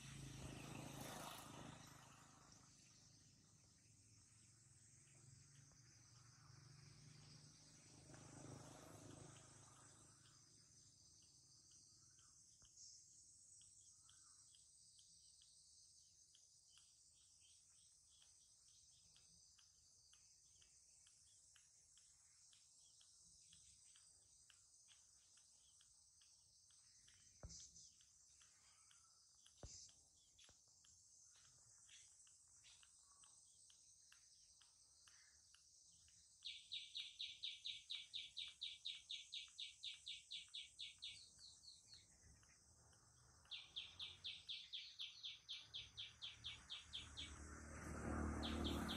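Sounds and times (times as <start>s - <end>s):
faint chirps: 0.0s - 48.9s
insect drone: 0.0s - 48.9s
rapid high chirps: 0.1s - 47.4s
soft clicks: 9.0s - 44.5s.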